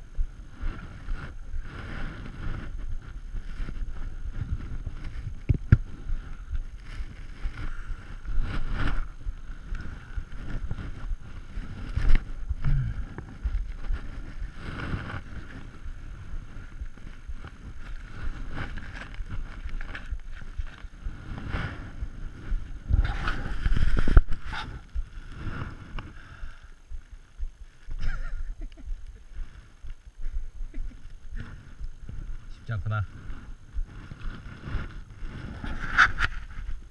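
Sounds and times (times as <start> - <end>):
wind rumbling on microphone: 0.0 - 36.9
gear rustling and knocking: 2.6 - 21.5.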